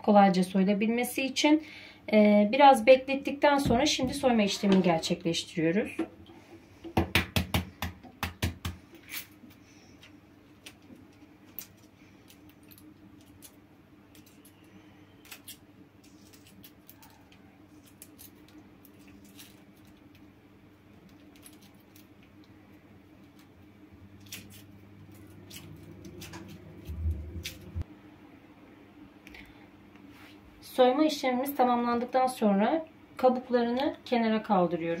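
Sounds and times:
low steady hum: 0.0s - 35.0s
eggshells being peeled: 10.5s - 27.8s.

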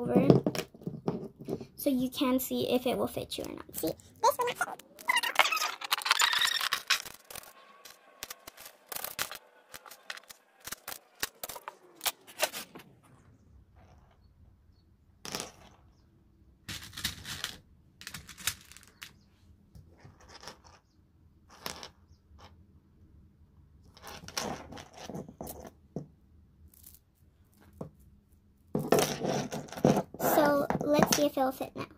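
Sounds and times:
plastic beads clicking: 4.6s - 12.2s.

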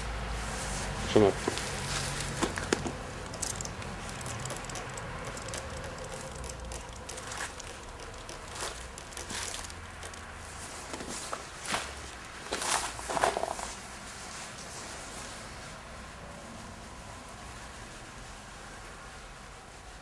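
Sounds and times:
brush tapping on vinyl: 1.5s - 10.4s.

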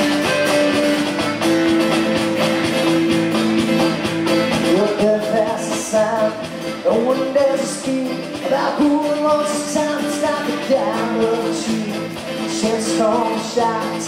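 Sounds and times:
folk-rock band playing: 0.0s - 14.0s
person singing: 4.6s - 14.0s.

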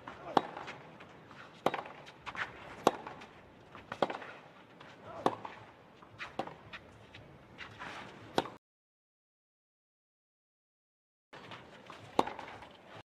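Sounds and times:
tennis racket striking ball: 0.1s - 0.8s, 1.6s - 4.4s, 6.2s - 6.8s, 12.1s - 12.6s.

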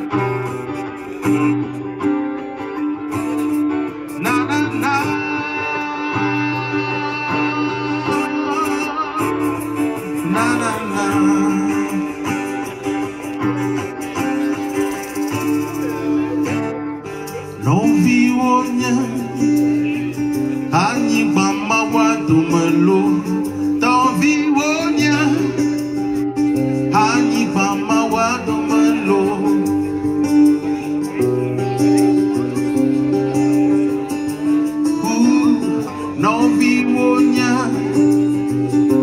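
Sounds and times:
strummed acoustic guitar: 0.0s - 39.0s
man singing: 3.9s - 15.0s, 15.8s - 39.0s.

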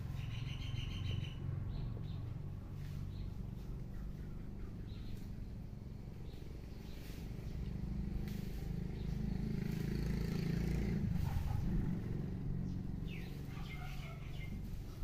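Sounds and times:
bird chirping: 0.0s - 2.4s, 3.0s - 7.6s, 12.6s - 14.9s
vehicle engine passing: 0.0s - 15.0s.

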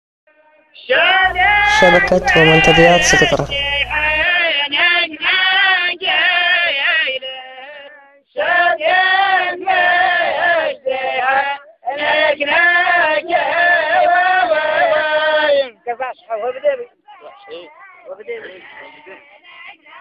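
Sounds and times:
person singing unaccompanied: 1.0s - 15.6s.

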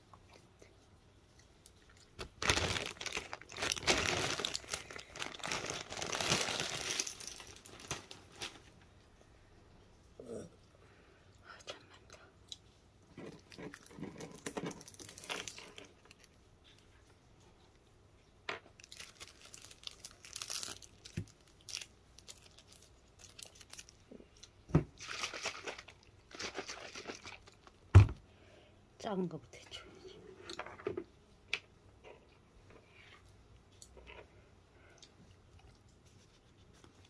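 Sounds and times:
packaging crinkling: 2.0s - 8.7s, 13.4s - 16.3s, 18.8s - 24.0s, 25.0s - 27.8s.

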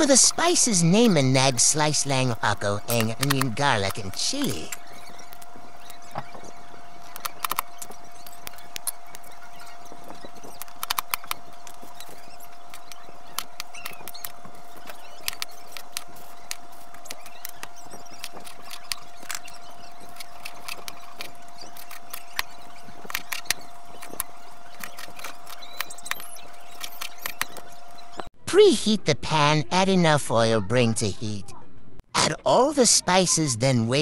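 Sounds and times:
steady high tone: 0.0s - 6.7s.

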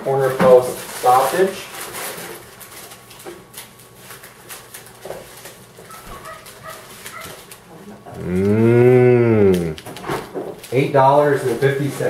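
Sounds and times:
paper rustling and clicks: 1.0s - 7.7s
low drawn-out vocal sound: 8.1s - 9.8s.

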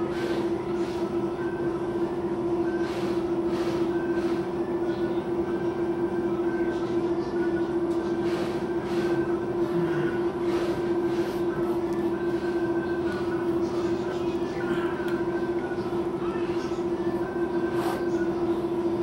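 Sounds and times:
machine hum: 0.0s - 19.0s.

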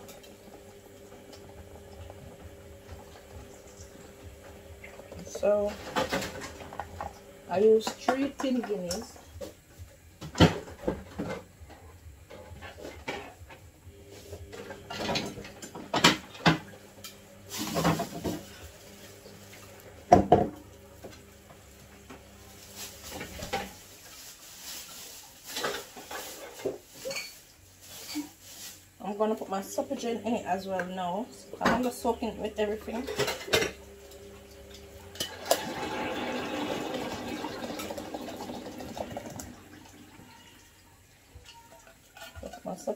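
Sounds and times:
dishes and utensils clattering: 14.5s - 18.6s, 25.5s - 28.4s, 32.8s - 40.6s, 41.3s - 42.9s.

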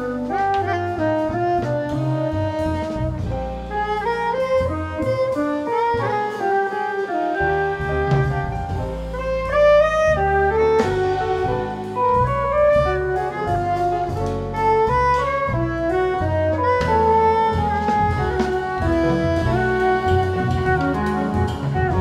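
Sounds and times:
drums with cymbals: 0.0s - 22.0s
piano: 0.0s - 22.0s
saxophone melody: 0.0s - 22.0s
upright double bass: 0.0s - 22.0s.

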